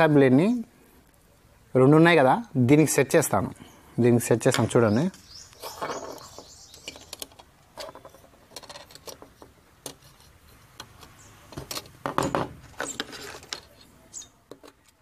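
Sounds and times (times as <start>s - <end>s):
rustle and clatter: 5.5s - 15.0s
metal parts clinking on wood: 5.6s - 10.0s.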